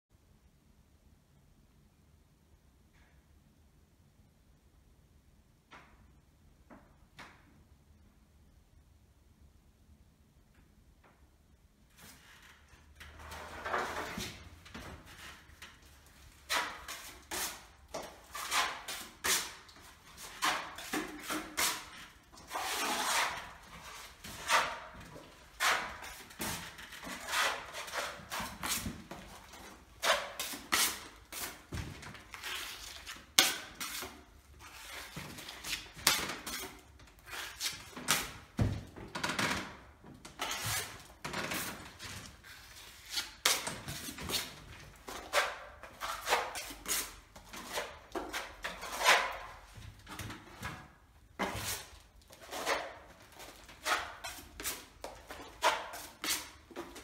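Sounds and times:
metal scraper scraping plaster wall: 12.0 - 38.6, 39.3 - 57.0.

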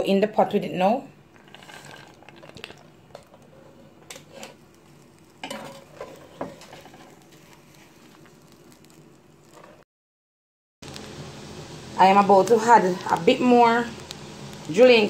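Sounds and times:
faint sizzle: 0.0 - 9.8, 10.8 - 15.0
rice stirred in a pot: 1.3 - 9.8.

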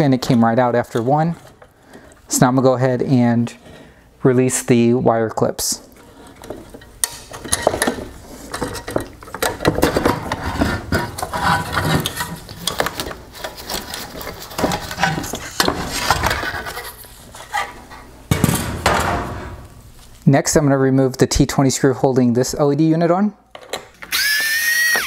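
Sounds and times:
plastic parts clicking and rattling: 6.4 - 16.9.

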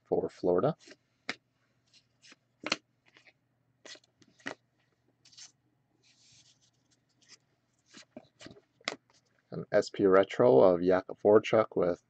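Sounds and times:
soft rustle of cards: 0.6 - 9.5.

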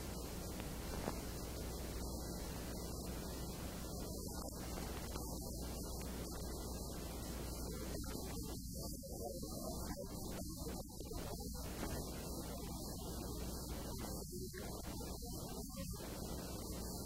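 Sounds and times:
electrical hum and hiss: 0.0 - 17.0.

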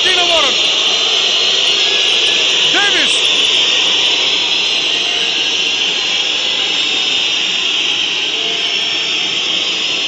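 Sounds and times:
arena crowd din: 0.0 - 10.0.

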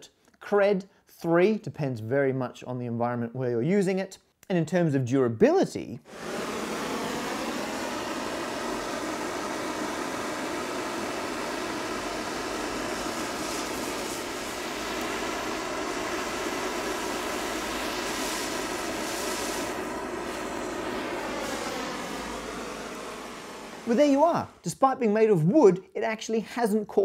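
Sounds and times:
blowtorch hissing: 6.1 - 24.7.

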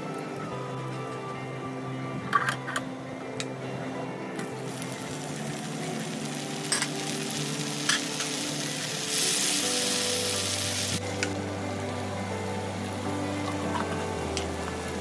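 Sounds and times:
food sizzling in a frying pan: 4.4 - 15.0.

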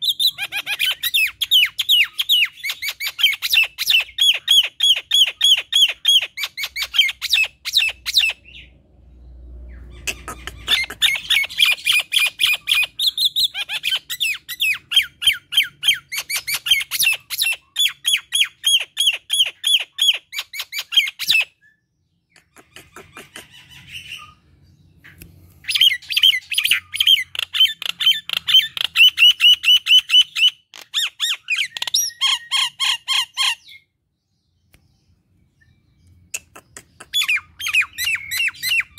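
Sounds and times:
myna harsh chattering calls: 9.9 - 12.9.

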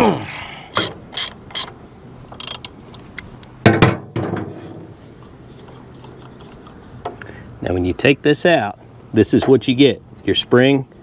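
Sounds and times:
ratchet wrench clicking: 0.1 - 1.7, 2.3 - 2.8.

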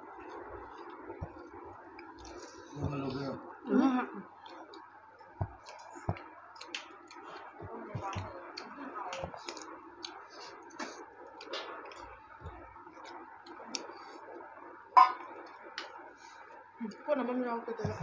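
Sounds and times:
eating mouth sounds: 0.3 - 12.2.

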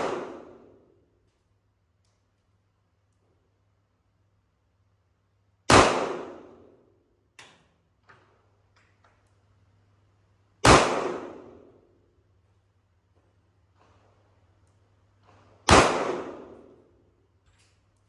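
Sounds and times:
pistol shots: 0.0 - 0.8, 5.7 - 6.8, 10.6 - 11.8, 15.6 - 16.9.

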